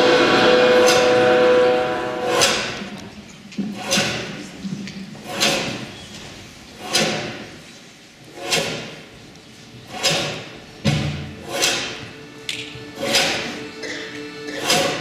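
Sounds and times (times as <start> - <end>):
sharp swishing hits: 0.0 - 2.9.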